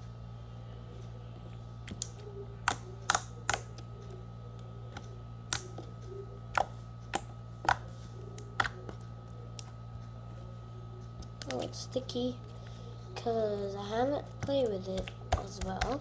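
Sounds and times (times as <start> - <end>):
steady low hum: 0.0 - 16.0
slime clicking and popping: 1.9 - 3.7, 4.9 - 5.9.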